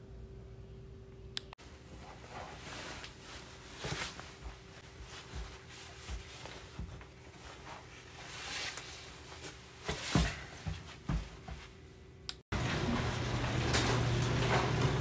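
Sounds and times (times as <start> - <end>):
clothing rustling: 1.6 - 11.9
feet thumping on doormat: 9.8 - 11.7.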